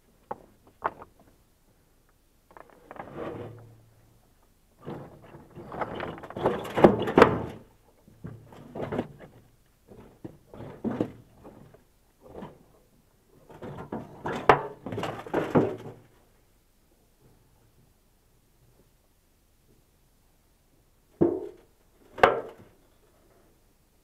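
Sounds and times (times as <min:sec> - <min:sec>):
stones grinding and scraping: 0:02.5 - 0:03.7, 0:04.8 - 0:07.2
stones knocking on metal wheelbarrow: 0:04.9 - 0:09.4, 0:13.6 - 0:16.0, 0:21.2 - 0:21.6.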